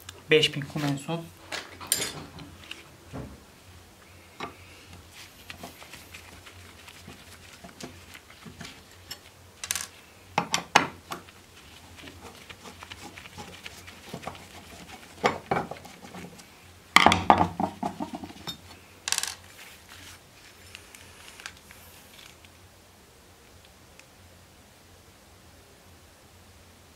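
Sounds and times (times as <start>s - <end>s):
steel parts clattering: 1.8s - 2.2s, 9.0s - 10.0s, 18.4s - 19.4s
metal clinks and rattles: 9.0s - 10.0s.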